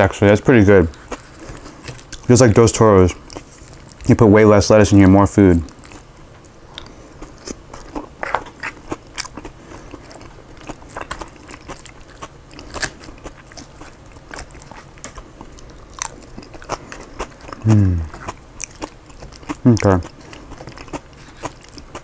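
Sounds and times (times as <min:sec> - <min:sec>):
chewing and crunching lettuce: 0:00.2 - 0:22.0
person humming: 0:17.6 - 0:18.1.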